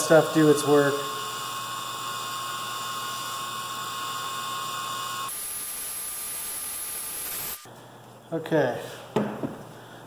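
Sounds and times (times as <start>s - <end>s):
cordless drill running: 0.0s - 7.7s.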